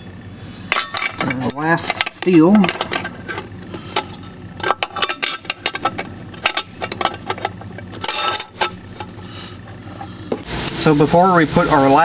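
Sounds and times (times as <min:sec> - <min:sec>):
metal plate clinking: 0:00.7 - 0:09.2
metal scraping: 0:02.8 - 0:12.0.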